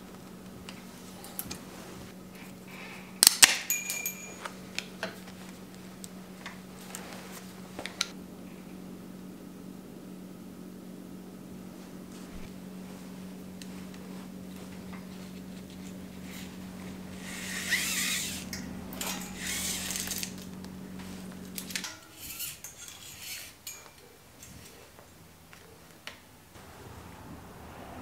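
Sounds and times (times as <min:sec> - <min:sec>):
steady low hum: 0:00.0 - 0:28.0
bicycle cables scraping and rattling: 0:00.6 - 0:02.5, 0:03.4 - 0:08.2, 0:12.1 - 0:25.7
metal clicks and clinks: 0:03.2 - 0:05.1, 0:18.5 - 0:20.5, 0:21.6 - 0:24.8.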